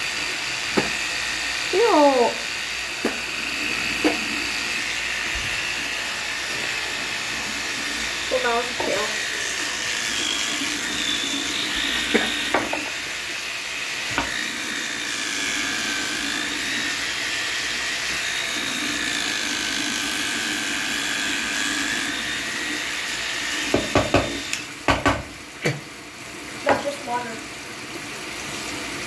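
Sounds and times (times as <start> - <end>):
electric toothbrush buzzing: 0.0 - 29.0
sharp knocks: 23.7 - 25.8.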